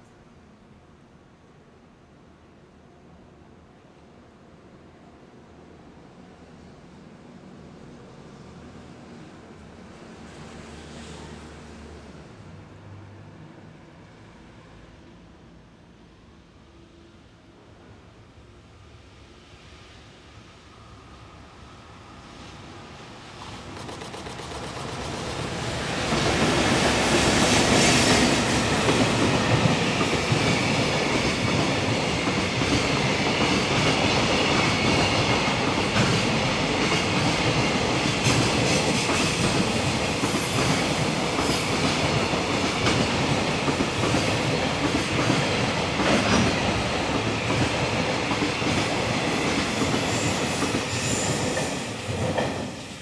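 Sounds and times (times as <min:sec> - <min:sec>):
electric locomotives passing: 0:16.0 - 0:53.0.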